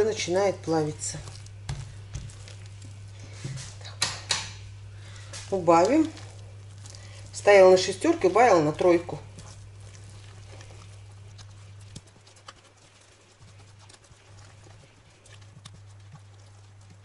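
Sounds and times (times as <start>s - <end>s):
low steady hum: 0.0s - 17.0s
spatula tapping and scraping pan: 4.0s - 4.6s.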